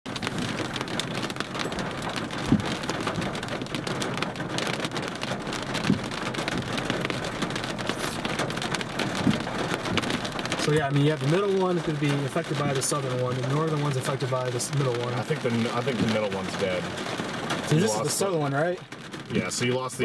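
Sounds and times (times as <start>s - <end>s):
heavy rain and hail pelting: 0.1s - 20.0s
heavy thuds: 0.2s - 10.7s.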